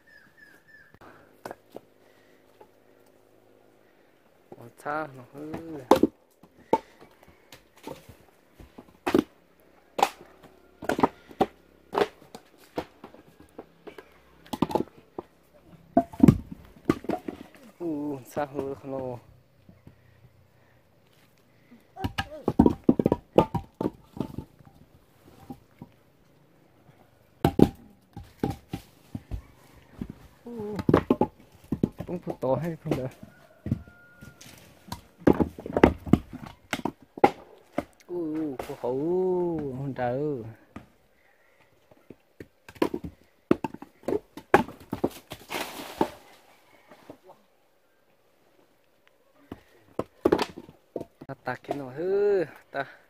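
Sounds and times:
wooden logs knocking together: 1.1 - 3.2, 3.9 - 26.1, 27.2 - 47.2, 49.4 - 53.0
person speaking: 17.6 - 19.3, 30.4 - 31.0, 38.1 - 40.6.

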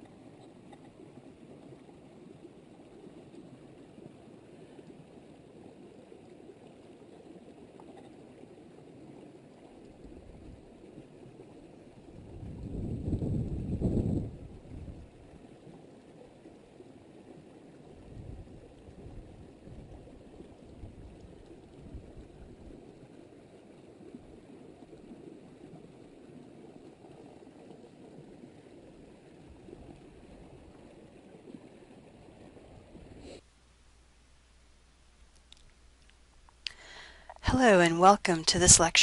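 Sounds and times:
wind on microphone: 12.0 - 15.4, 18.0 - 22.9.

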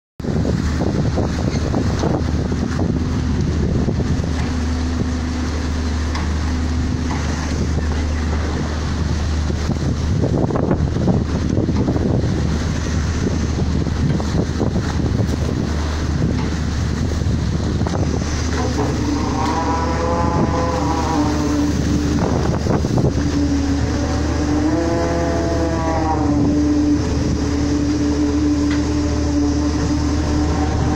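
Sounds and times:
boat engine droning: 0.2 - 30.9
wind buffeting microphone: 0.2 - 30.9
high whine: 0.3 - 30.9.

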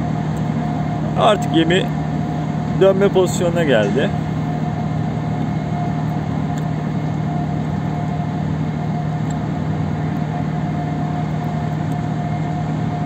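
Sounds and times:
higher steady tone: 0.0 - 6.3
low engine hum: 0.0 - 13.0.

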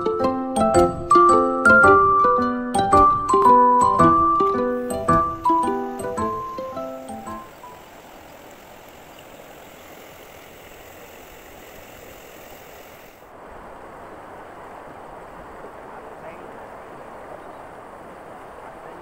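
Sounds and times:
river rushing: 0.0 - 19.0.

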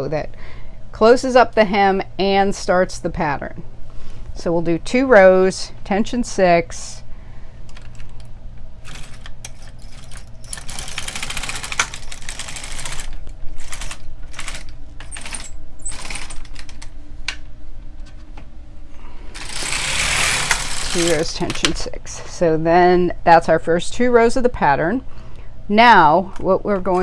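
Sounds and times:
knitting machine needles clattering: 8.8 - 16.9, 19.4 - 21.8.

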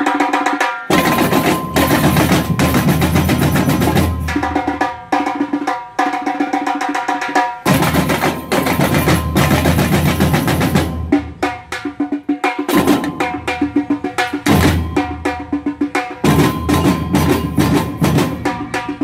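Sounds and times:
tamborims struck with sticks: 16.2 - 19.0.

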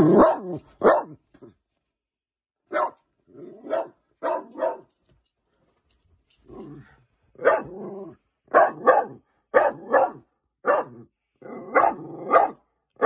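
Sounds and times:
dog barking: 0.0 - 1.2, 2.7 - 4.9, 7.4 - 13.0.

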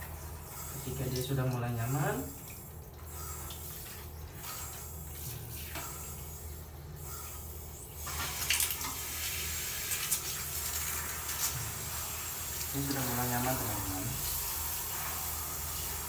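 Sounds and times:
shower water spraying on fur and tiles: 0.0 - 16.0.

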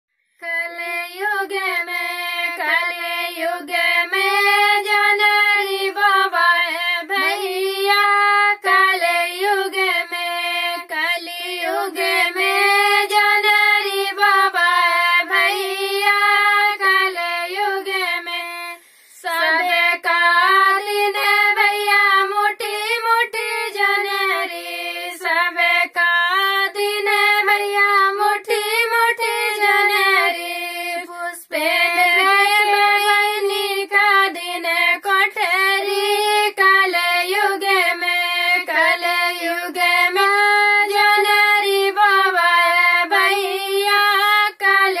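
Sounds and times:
women singing folk song: 0.4 - 45.0.

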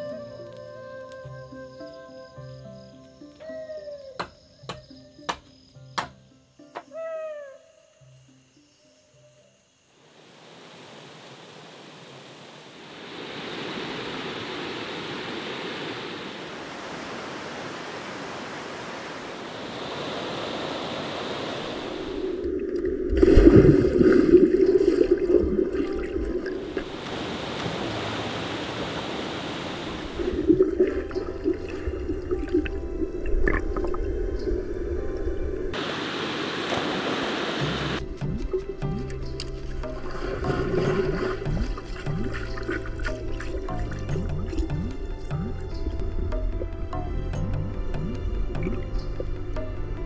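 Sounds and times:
stream water rushing: 10.0 - 38.0, 39.4 - 45.6.

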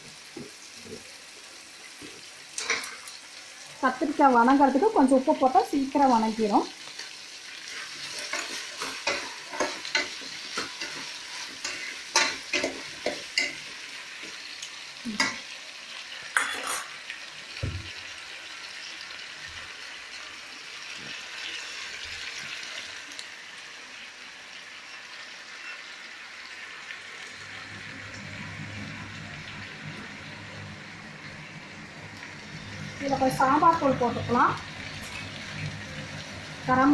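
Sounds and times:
vegetables sizzling in oil: 0.0 - 36.9
spoon scraping steel pot: 16.4 - 17.0.

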